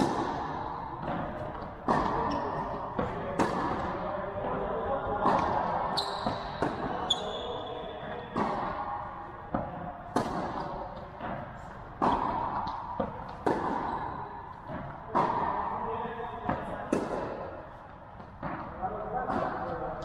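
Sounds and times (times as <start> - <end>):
tennis ball bouncing: 0.0 - 15.8, 16.4 - 19.8
rackets striking tennis ball: 0.0 - 20.0
shoes squeaking on court: 5.9 - 8.3.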